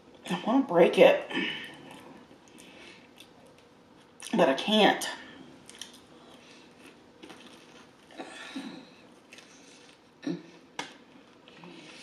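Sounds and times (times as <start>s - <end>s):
biting and chewing: 5.6s - 8.3s.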